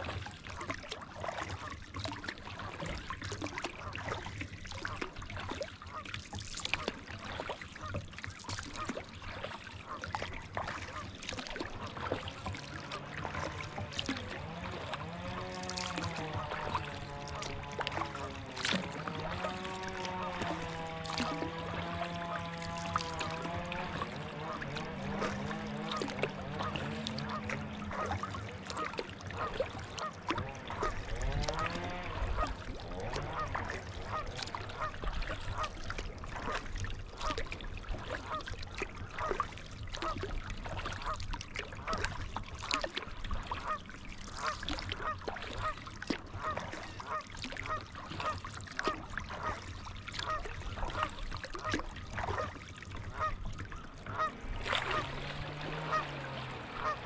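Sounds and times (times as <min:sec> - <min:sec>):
geese honking: 0:10.9 - 0:35.7, 0:53.1 - 0:57.0.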